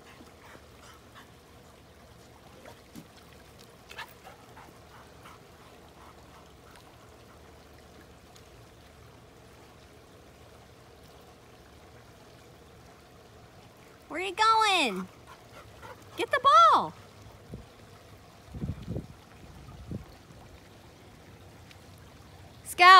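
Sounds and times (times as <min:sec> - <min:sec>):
trickle of pool water: 0:00.0 - 0:22.9.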